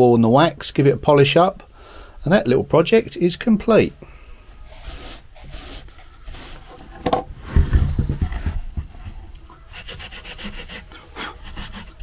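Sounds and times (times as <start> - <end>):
wire wool worked in wax: 4.5 - 7.0, 8.2 - 12.0
wire wool rubbing on wood: 4.7 - 6.9, 9.6 - 12.0.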